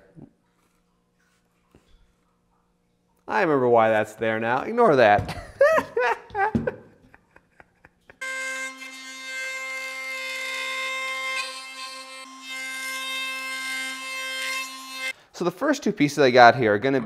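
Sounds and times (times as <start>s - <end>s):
router whining cutting metal: 8.2s - 15.1s.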